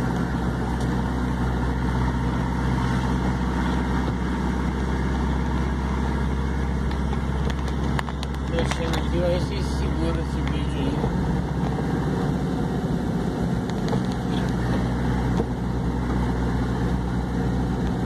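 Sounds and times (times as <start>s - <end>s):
road noise: 0.0s - 18.0s
vehicle engine running: 0.0s - 18.0s.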